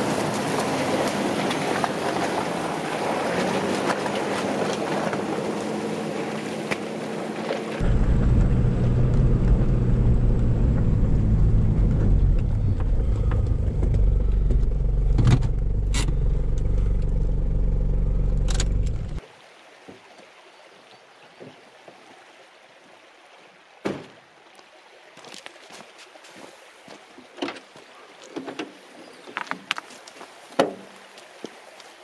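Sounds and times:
car engine running: 7.8s - 19.2s
tyres on gravel: 25.2s - 32.0s.

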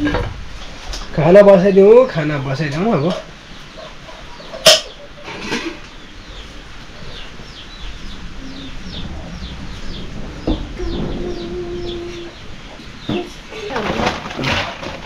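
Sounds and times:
small bird chirping: 2.6s - 13.8s
metal pot clanking down: 4.5s - 5.8s.

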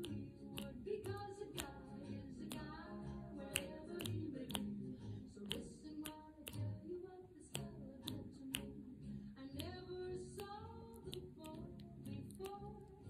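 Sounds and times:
finger-snap beat: 0.0s - 13.0s
song with sung melody: 0.0s - 13.0s.

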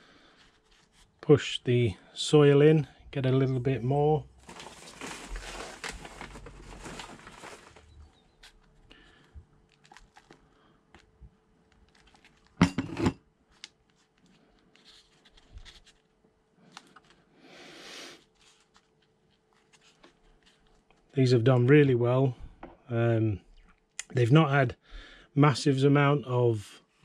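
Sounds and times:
potting mix rustling and scraping: 4.4s - 8.7s.

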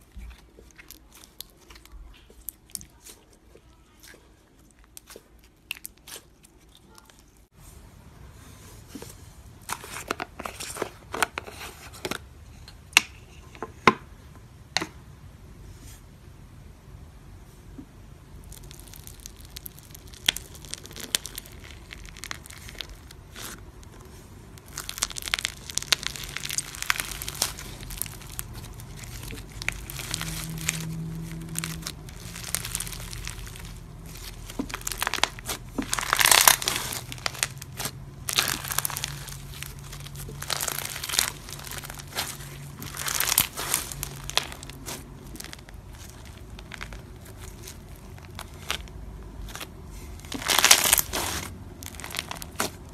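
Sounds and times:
foam slime crackling: 0.0s - 7.5s, 18.4s - 52.9s.

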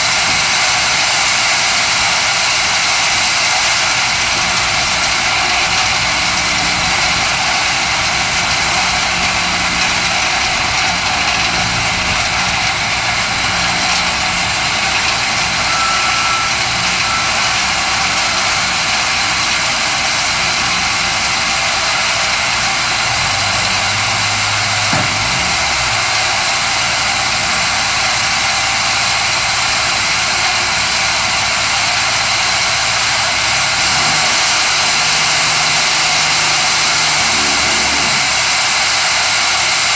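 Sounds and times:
vibrating screener machine drone: 33.0s - 39.5s.

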